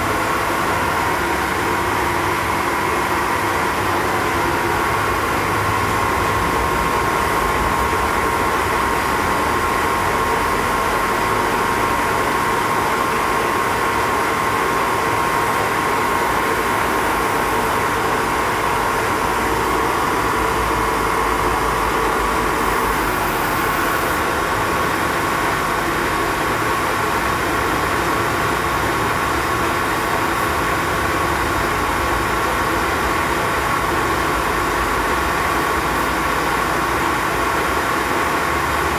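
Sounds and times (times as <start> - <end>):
machine whine: 0.0 - 28.0
milling machine hum: 0.1 - 38.9.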